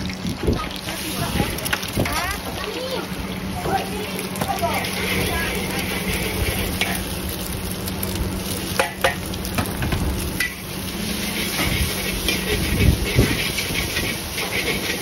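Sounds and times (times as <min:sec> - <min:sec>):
food sizzling in a wok: 0:00.0 - 0:15.0
metal spatula scraping wok: 0:04.6 - 0:07.1, 0:10.4 - 0:15.0.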